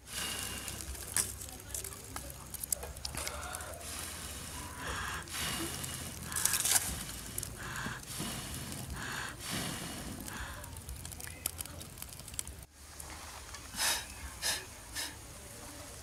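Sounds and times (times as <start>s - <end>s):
person blowing breathy puffs: 0.0s - 1.2s, 3.6s - 11.1s, 13.7s - 15.2s
faint fire crackling: 0.0s - 16.0s.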